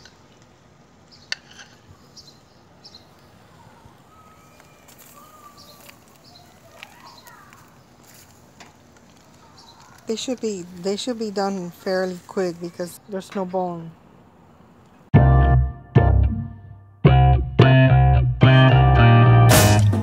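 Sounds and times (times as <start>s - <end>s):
small birds chirping: 0.0s - 13.9s.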